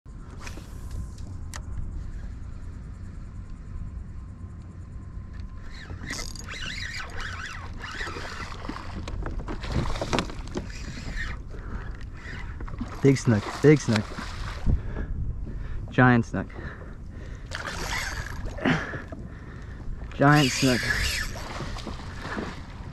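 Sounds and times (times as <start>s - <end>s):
steady low rumble: 0.1s - 6.4s, 11.4s - 20.4s
fish thrashing and splashing water: 7.1s - 11.2s, 12.2s - 14.7s, 17.5s - 19.0s, 20.4s - 22.9s.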